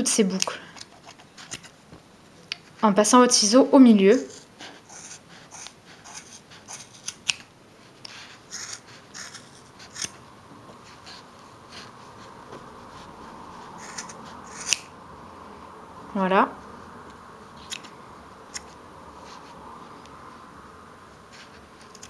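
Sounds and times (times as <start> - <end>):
scissors snipping yarn: 4.9 - 7.5, 8.5 - 10.2, 13.8 - 14.9, 17.6 - 18.8, 21.3 - 22.0.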